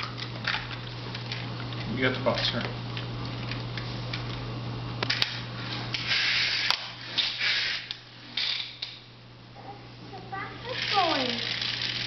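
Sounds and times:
toy car motor bursts: 6.0 - 8.6, 10.6 - 12.0.

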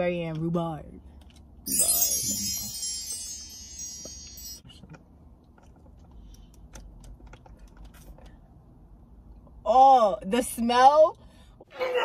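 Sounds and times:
bright high chime: 1.7 - 4.7.

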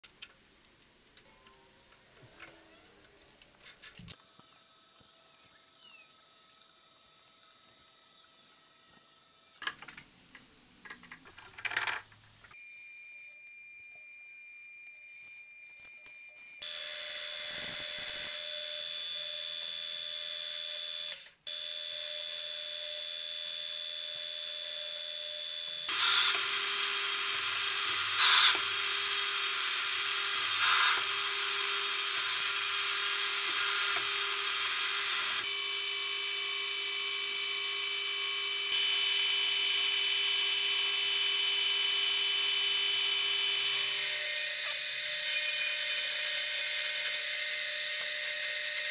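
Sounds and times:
lathe spindle whine: 25.9 - 48.9.

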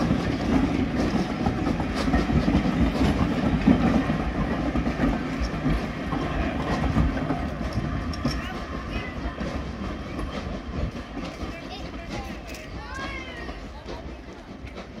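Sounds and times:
train wheels rumbling and clicking: 0.0 - 15.0.

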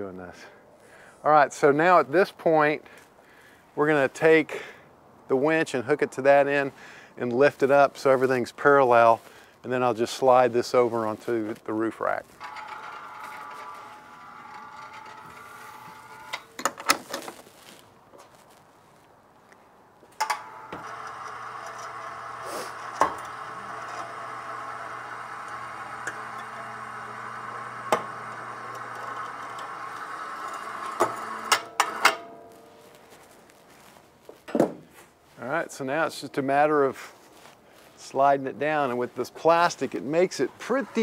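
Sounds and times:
electric hoist motor winching: 12.4 - 16.6, 20.2 - 32.6, 40.6 - 41.0.

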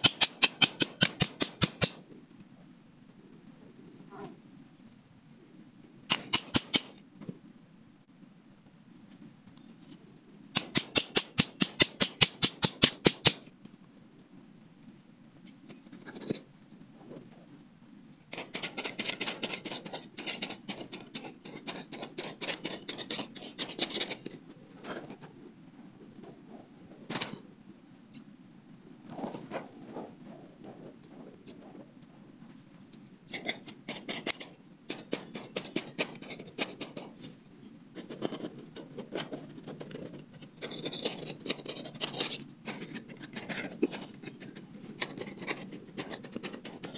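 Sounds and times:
knife scraping dirt: 0.0 - 2.0, 6.1 - 7.0, 10.6 - 13.5, 15.7 - 16.5, 18.3 - 25.3, 33.3 - 46.9.

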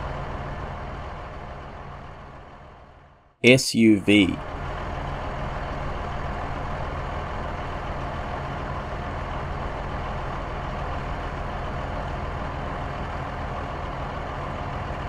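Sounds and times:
vehicle engine running steadily: 4.5 - 15.0.

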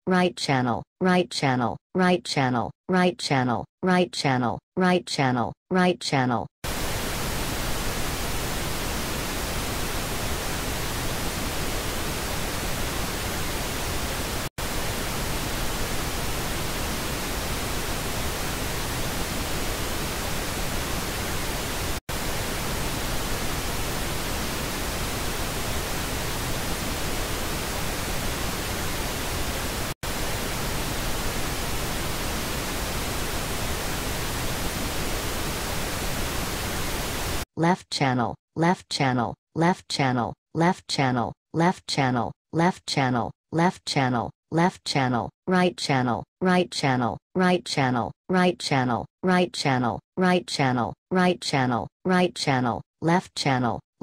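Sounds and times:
pink noise hiss: 6.7 - 37.4.

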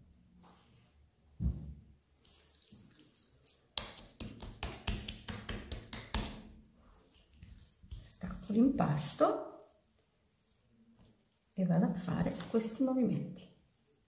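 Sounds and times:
soft thump: 1.4 - 1.8
hands slapping dough: 2.2 - 8.6.

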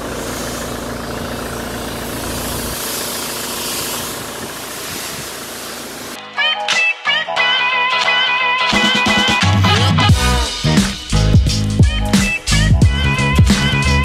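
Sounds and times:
diesel engine idling: 0.0 - 6.2, 10.1 - 14.0.

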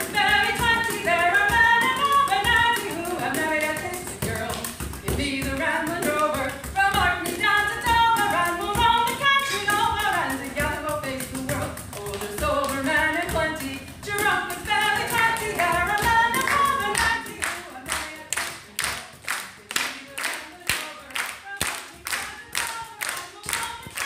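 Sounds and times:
voices singing a folk song: 0.0 - 24.0
hand clapping in time: 14.2 - 24.0.

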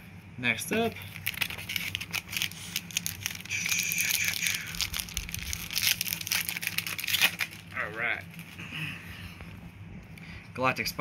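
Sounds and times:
foil wrapper crinkling: 0.8 - 8.6
foil wrapper tearing: 0.9 - 8.6.

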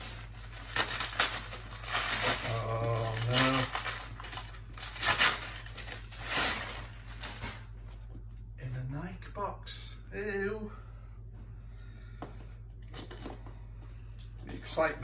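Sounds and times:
paper crumpling and rustling: 0.0 - 8.0
man humming: 2.4 - 3.7.

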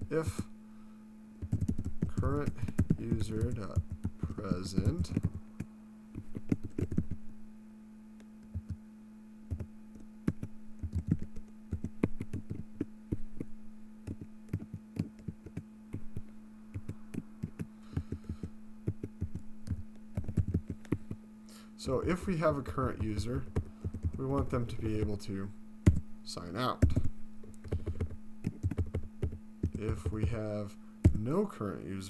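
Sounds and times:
steady low hum: 0.0 - 32.0
computer keyboard typing: 1.4 - 7.2, 8.5 - 8.8, 9.5 - 9.7, 10.3 - 21.1, 23.0 - 25.2, 26.8 - 30.2.

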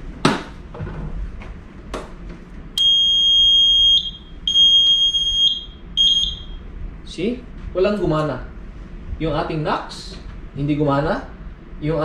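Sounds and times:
electronic alarm buzzer beeping: 2.8 - 6.6.

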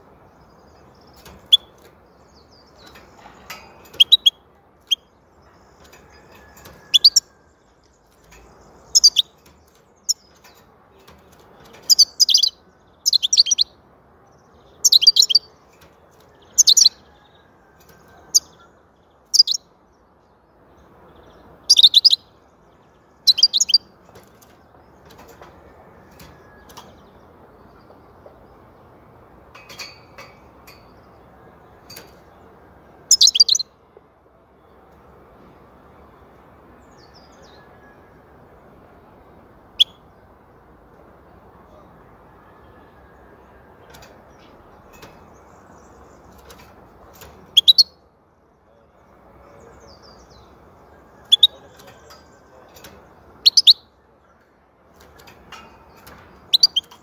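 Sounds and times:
bird chirping in high bursts: 3.9 - 5.1, 6.9 - 7.3, 8.8 - 9.4, 11.8 - 13.8, 14.8 - 15.6, 16.5 - 17.0, 19.3 - 19.7, 21.6 - 22.4, 23.2 - 23.9, 33.1 - 33.8, 39.7 - 40.1, 47.5 - 48.0, 51.2 - 51.6, 53.4 - 54.0, 56.4 - 57.0.

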